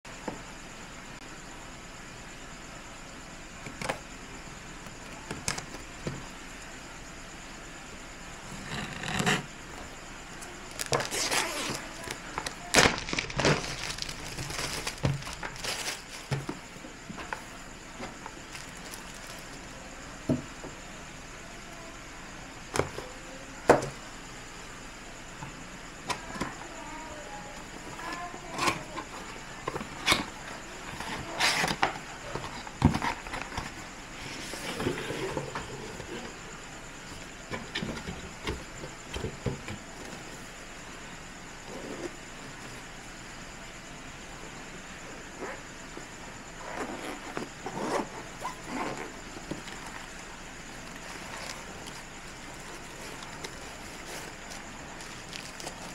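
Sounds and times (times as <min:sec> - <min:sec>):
plastic shrink-wrap crinkling: 0:10.7 - 0:16.6, 0:18.2 - 0:19.7, 0:50.8 - 0:55.9
fabric case rustling: 0:10.7 - 0:19.7, 0:46.9 - 0:55.9
cardboard lid sliding and scraping: 0:31.0 - 0:36.3.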